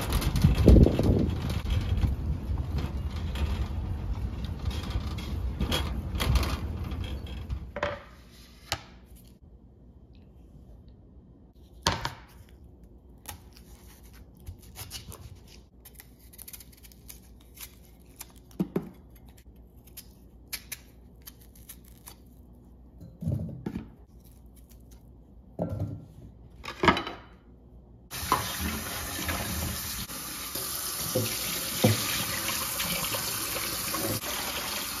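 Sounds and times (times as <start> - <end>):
wind on microphone: 0.0 - 2.8
shopping cart rolling and rattling: 0.0 - 7.5.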